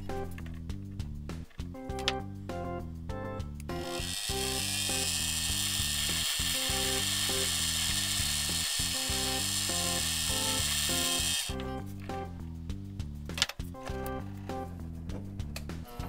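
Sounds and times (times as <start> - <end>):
background music with stepped beat: 0.0 - 4.5, 5.9 - 16.0
lathe whining: 3.8 - 11.6.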